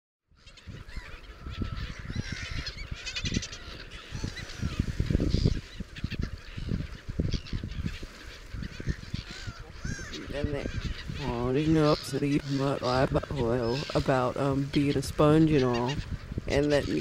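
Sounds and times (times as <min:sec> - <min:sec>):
fast rattling bird call: 0:00.4 - 0:11.2
gulls squawking: 0:00.4 - 0:17.0.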